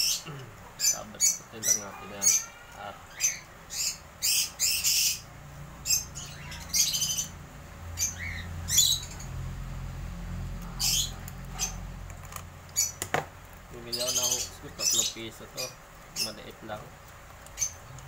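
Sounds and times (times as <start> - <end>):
cockatiels squawking: 0.0 - 7.4, 8.0 - 9.3, 10.6 - 11.9, 12.7 - 13.1, 13.8 - 16.6.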